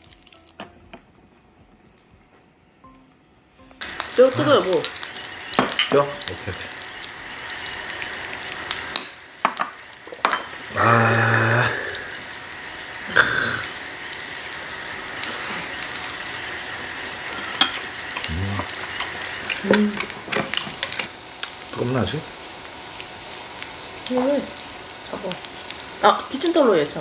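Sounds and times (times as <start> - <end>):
meat sizzling on grill: 0.0 - 0.6, 3.8 - 27.0
chopsticks and tongs clicking: 0.0 - 0.7.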